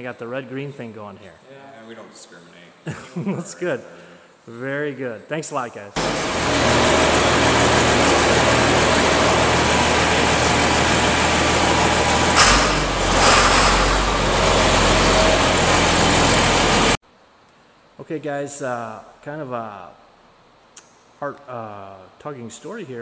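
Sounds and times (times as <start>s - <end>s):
tractor diesel engine running: 6.0s - 17.0s.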